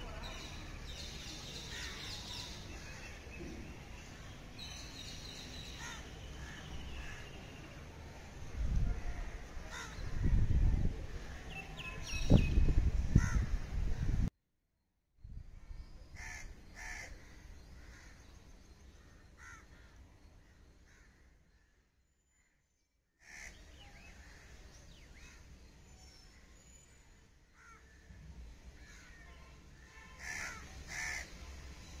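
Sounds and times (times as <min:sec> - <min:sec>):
crows cawing: 0:09.7 - 0:10.1, 0:13.2 - 0:13.5, 0:16.2 - 0:18.2, 0:19.4 - 0:20.0, 0:23.2 - 0:23.6, 0:27.6 - 0:28.0, 0:30.2 - 0:31.3.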